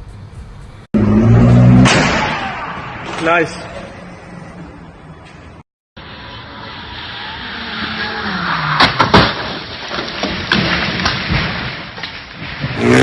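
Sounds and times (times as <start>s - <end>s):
car engine and tyre noise: 0.0s - 13.0s
car crashing into pole: 1.7s - 3.2s, 8.7s - 13.0s.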